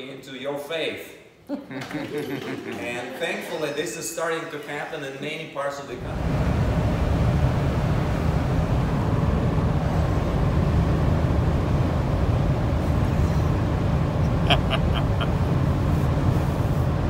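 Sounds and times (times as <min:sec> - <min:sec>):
road and engine rumble: 0:06.0 - 0:17.0.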